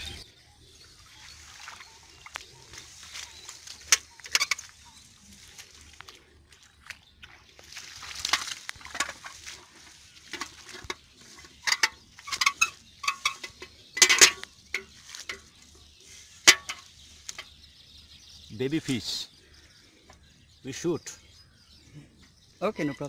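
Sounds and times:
wet fishing net rustling on grass: 1.0s - 11.5s
fish slapping and clicking: 1.6s - 15.6s.

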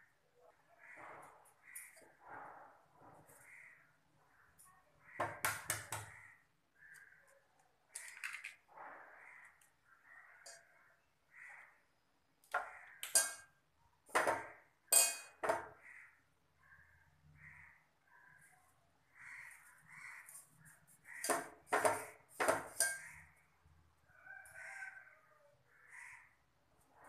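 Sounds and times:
crows cawing: 0.7s - 2.2s, 3.3s - 4.0s, 5.0s - 11.9s, 12.5s - 13.2s, 15.5s - 23.5s, 24.1s - 26.6s
knocks and clinks from mixing bowl: 14.1s - 15.8s, 21.2s - 23.0s.

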